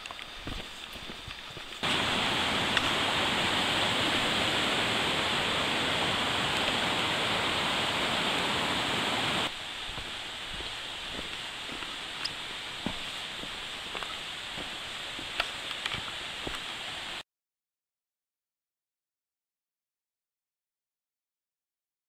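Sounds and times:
faint footsteps on trail: 0.0s - 16.8s
mountain brook rushing: 0.4s - 17.2s.

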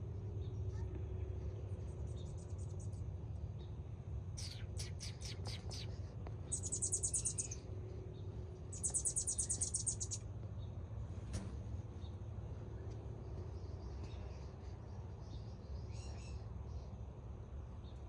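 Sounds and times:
hummingbird chattering trills: 4.4s - 7.6s, 8.7s - 10.2s
hummingbird chips: 4.4s - 7.6s, 8.7s - 10.2s.

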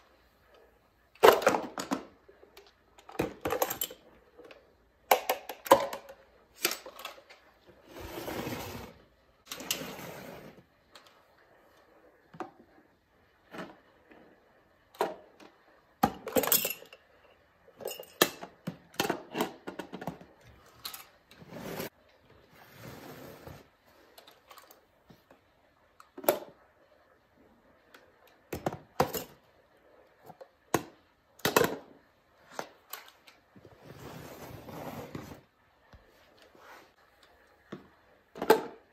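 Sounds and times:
plastic toy bins clattering: 1.2s - 8.9s, 17.8s - 21.9s.

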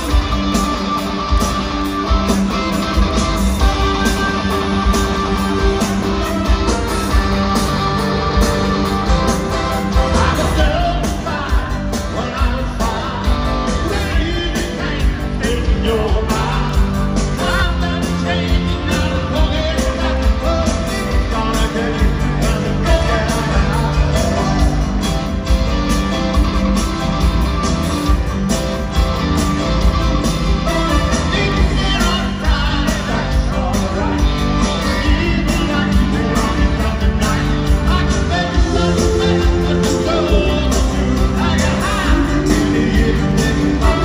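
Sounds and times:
live rock band playing: 0.0s - 44.0s
male lead vocal: 9.8s - 25.4s, 30.6s - 44.0s.

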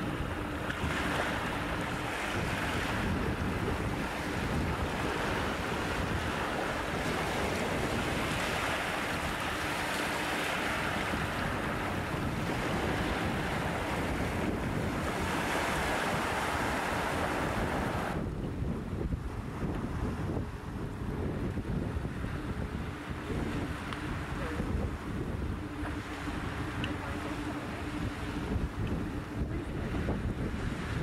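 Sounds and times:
waves washing over rocks: 0.0s - 18.4s
wind buffeting microphone: 0.0s - 31.0s.

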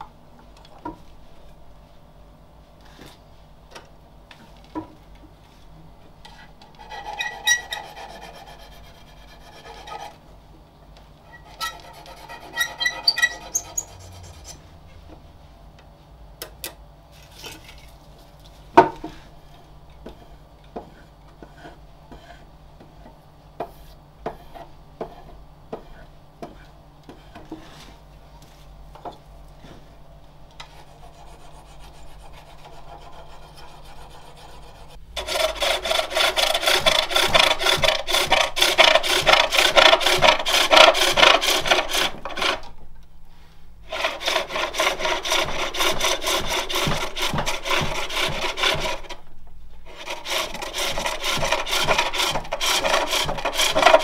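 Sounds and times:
turning tool scraping wood: 6.2s - 10.2s, 11.3s - 14.7s, 20.0s - 28.0s, 30.6s - 42.8s, 43.9s - 49.2s, 49.8s - 54.0s.

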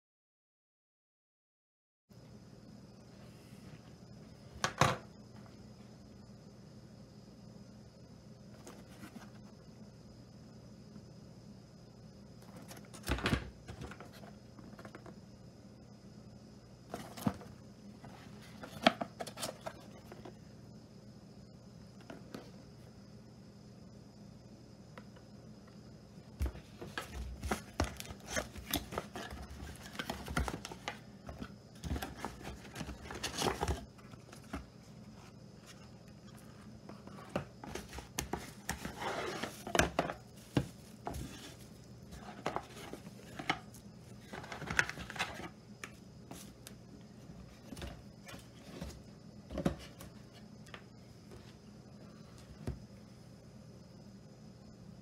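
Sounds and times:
cardboard scraping and sliding: 36.4s - 43.6s.

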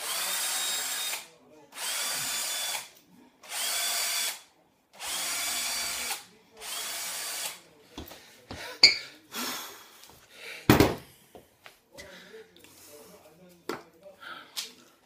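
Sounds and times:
cordless drill whirring: 0.0s - 4.4s, 5.0s - 7.6s.

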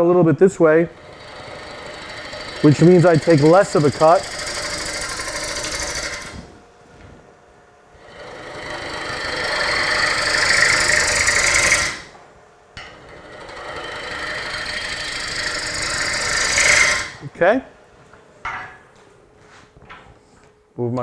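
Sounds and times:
gouge scraping spinning wood: 0.6s - 6.6s, 8.0s - 12.2s, 12.8s - 17.3s.

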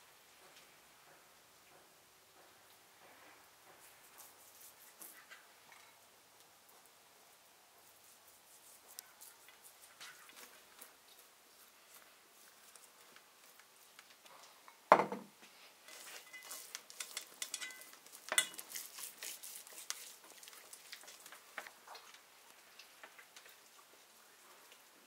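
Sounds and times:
hands smearing wet marinade: 3.8s - 5.3s, 7.8s - 14.2s, 15.9s - 24.8s
thump: 14.9s - 15.3s.

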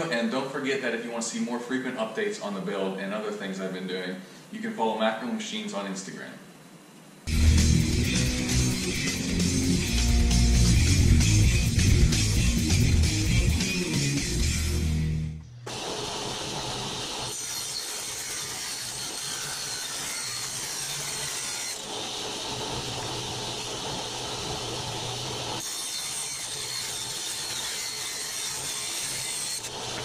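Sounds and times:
table saw cutting aluminum: 15.7s - 30.0s.

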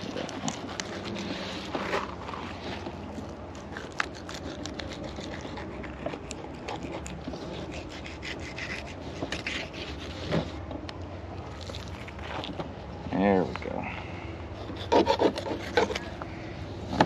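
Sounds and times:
knife scraping over bone: 0.0s - 10.6s, 14.6s - 16.1s.

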